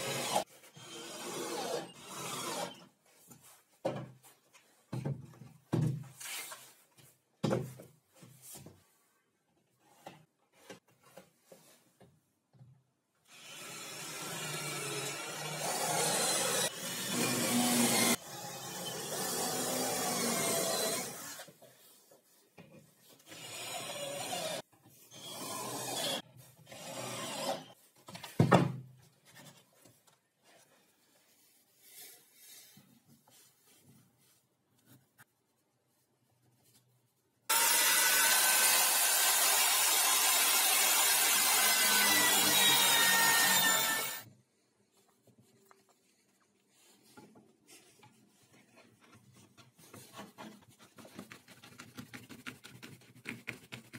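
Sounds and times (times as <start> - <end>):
cordless drill boring into wood: 0.0 - 2.8, 13.3 - 21.5, 25.2 - 27.7, 37.5 - 44.2
power tool working into wood: 13.3 - 21.5, 37.5 - 44.2.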